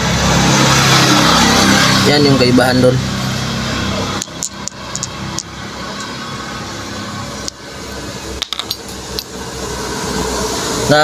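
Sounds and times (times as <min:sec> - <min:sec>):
steady background noise: 0:00.0 - 0:11.0
metallic clicks: 0:04.2 - 0:06.1.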